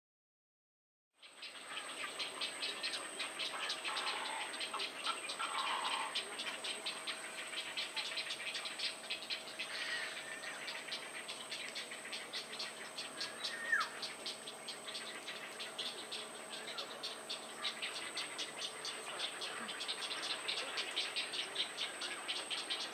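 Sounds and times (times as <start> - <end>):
myna bird calls: 1.2 - 22.9
fast ticking chorus: 1.4 - 22.9.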